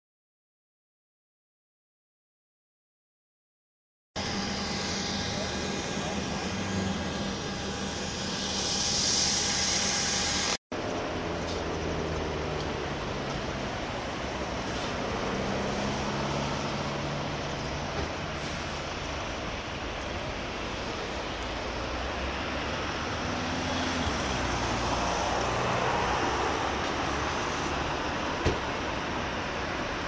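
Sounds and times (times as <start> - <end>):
vehicle engines idling: 4.2 - 23.2.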